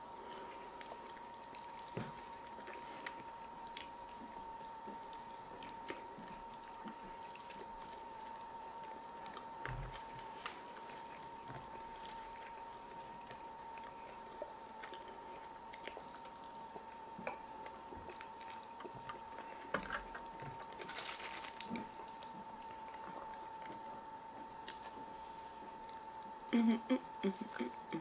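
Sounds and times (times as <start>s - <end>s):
chewing and biting meat: 0.4s - 26.5s
crisp rustling or crunching: 19.5s - 23.5s.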